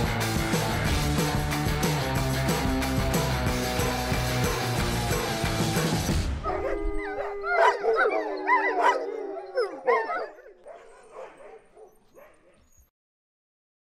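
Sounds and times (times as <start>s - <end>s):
dogs yipping and whining: 3.8s - 12.9s
long steady dog call: 6.5s - 12.8s.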